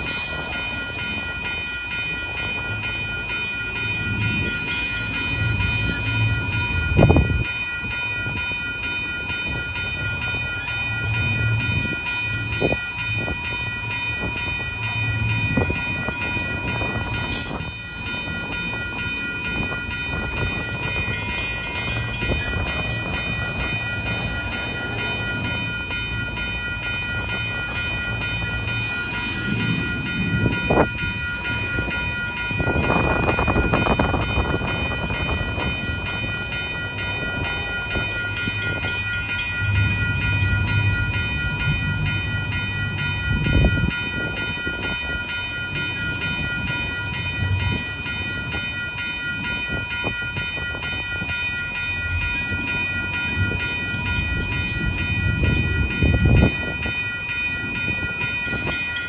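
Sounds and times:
steady high-pitched ring: 0:00.0 - 0:59.0
train rolling past rumbling: 0:00.0 - 0:59.0.

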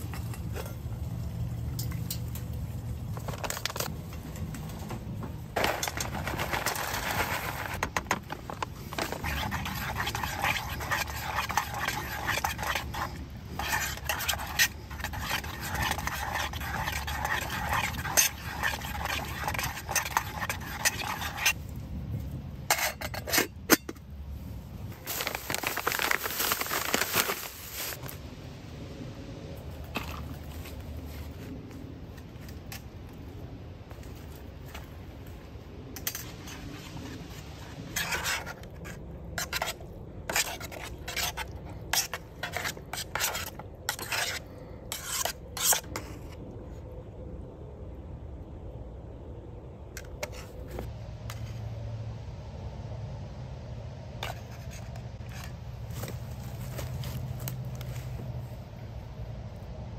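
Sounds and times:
metal spoon scraping a pot: 0:08.5 - 0:21.6, 0:22.7 - 0:24.0, 0:37.9 - 0:46.2.

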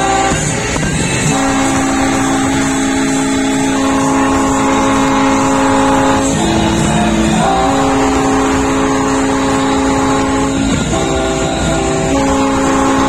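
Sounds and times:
ship horns blasting: 0:00.0 - 0:13.0.

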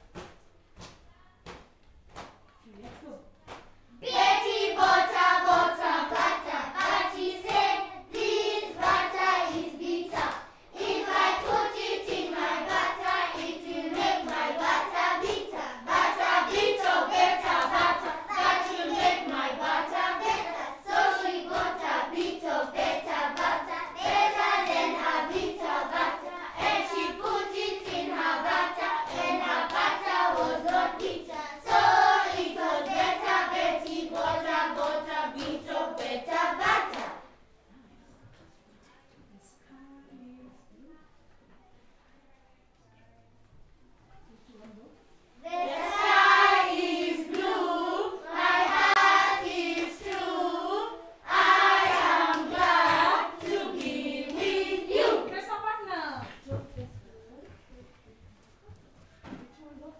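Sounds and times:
young children singing together: 0:03.9 - 0:37.5, 0:45.4 - 0:55.3.

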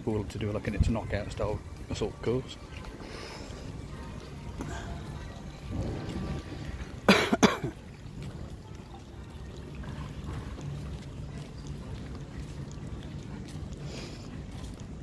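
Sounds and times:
steady low background noise: 0:00.0 - 0:15.0
person coughing: 0:07.1 - 0:07.8.

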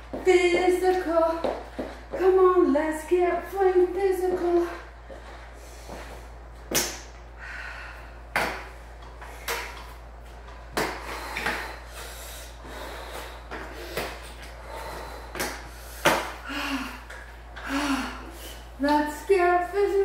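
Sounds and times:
spin bike thumping: 0:15.3 - 0:17.8.

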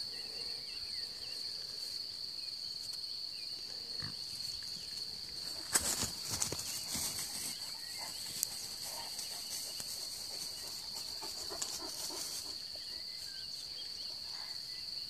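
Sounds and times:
crickets chirring: 0:00.0 - 0:15.0
wild boars grunting: 0:03.6 - 0:05.8.

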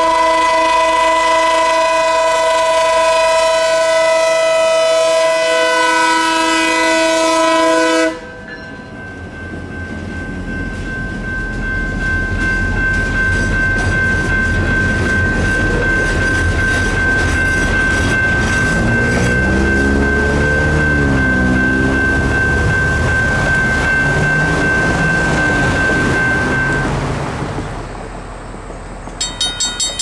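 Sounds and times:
locomotive air horn chord: 0:00.0 - 0:08.4
train wheels clickety-clack: 0:09.1 - 0:27.8, 0:28.6 - 0:30.0.

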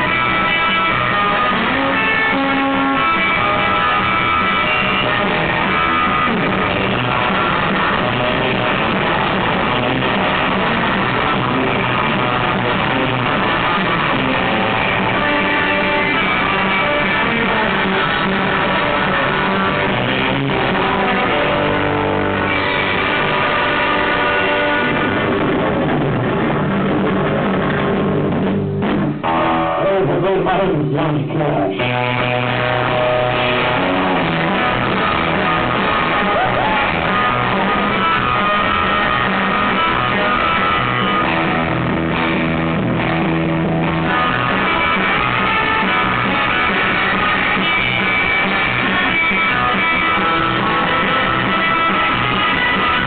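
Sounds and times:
drum kit: 0:00.0 - 0:53.0
electric guitar: 0:00.0 - 0:53.0.

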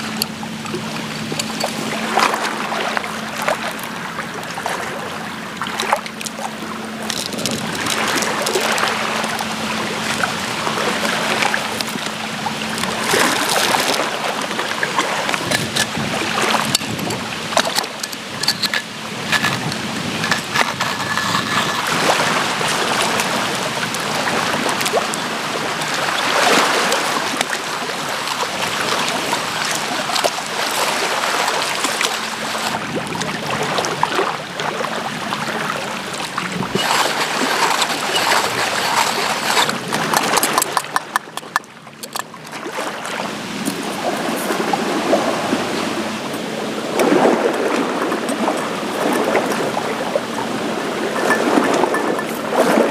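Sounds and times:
water lapping at shore: 0:00.0 - 0:52.9
coffee grinder crushing beans: 0:16.5 - 0:22.0, 0:36.7 - 0:42.2.

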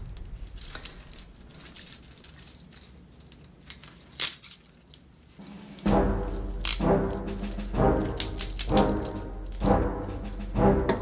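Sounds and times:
metal handcuffs clinking: 0:00.5 - 0:05.1
sharp metallic clack: 0:05.4 - 0:11.0.

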